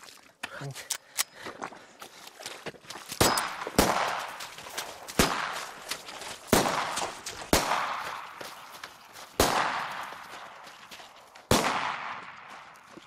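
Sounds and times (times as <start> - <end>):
pistol shots: 3.2 - 4.4, 5.2 - 5.7, 6.5 - 8.3, 9.4 - 10.3, 11.5 - 12.5.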